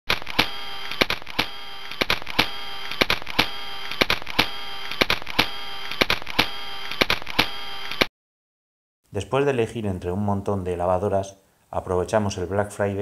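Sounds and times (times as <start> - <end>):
rhythmic percussive clicks: 0.4 - 8.1.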